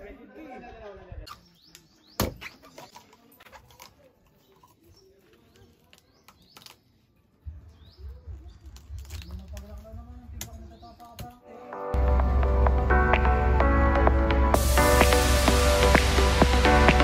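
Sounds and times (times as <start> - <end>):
birds chirping: 1.2 - 3.4, 4.2 - 11.4.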